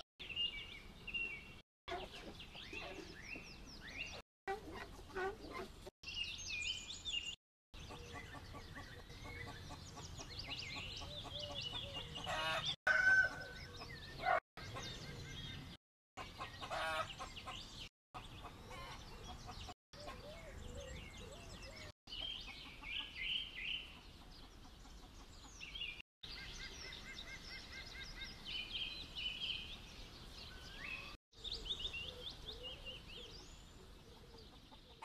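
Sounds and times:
chickens clucking: 4.5s - 5.9s, 7.8s - 14.9s, 16.2s - 21.1s, 23.8s - 25.7s, 34.1s - 35.0s.

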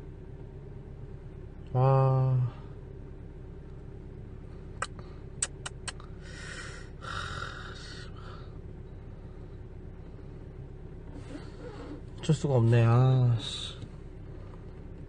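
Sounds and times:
steady low hum: 0.0s - 15.0s
man sighing heavily: 6.1s - 8.6s.

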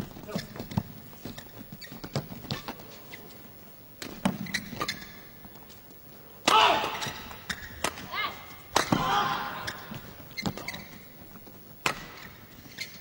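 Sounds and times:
shoes squeaking on court: 0.0s - 6.2s, 6.9s - 9.0s, 9.6s - 13.0s
rackets hitting shuttlecock: 6.4s - 8.1s, 8.7s - 10.6s, 11.8s - 12.4s.

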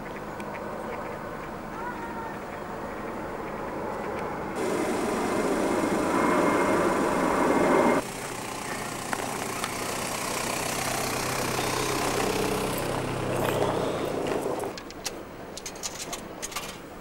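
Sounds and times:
car passing on snowy road: 4.6s - 14.7s.

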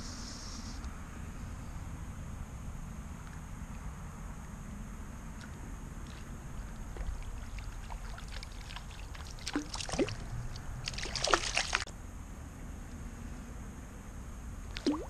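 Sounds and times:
fish splashing in water: 5.4s - 11.9s, 14.8s - 15.0s.

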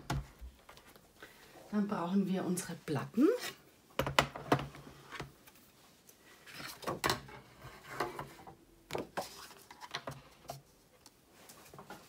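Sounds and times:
plastic plates knocking and clattering: 4.0s - 5.3s.

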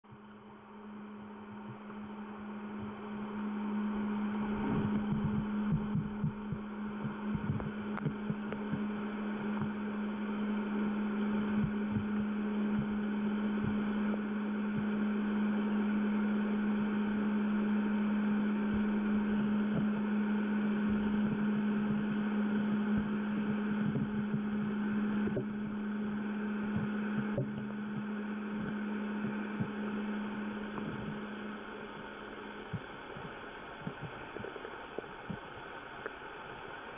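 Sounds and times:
steady low hum: 0.0s - 36.9s
muffled underwater water flow: 0.1s - 36.9s
faint ticks: 32.6s - 36.3s.

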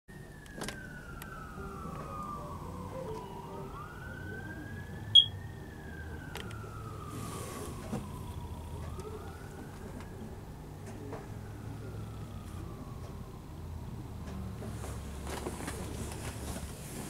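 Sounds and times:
siren wailing: 0.1s - 14.4s
short high beep: 5.2s - 5.4s.

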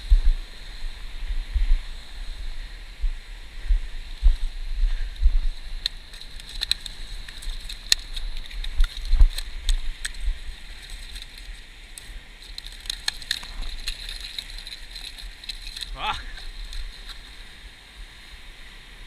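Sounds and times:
wind buffeting microphone: 0.0s - 11.7s.

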